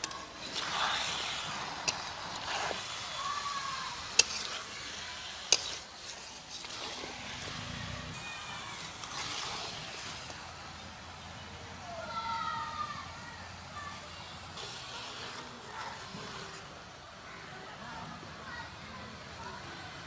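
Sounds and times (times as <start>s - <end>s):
metal spatula stirring: 0.0s - 11.2s, 14.6s - 17.0s
fish and potatoes sizzling in oil: 0.0s - 20.0s
spatula clacking on pan: 1.8s - 2.8s, 4.0s - 4.8s, 5.4s - 5.9s.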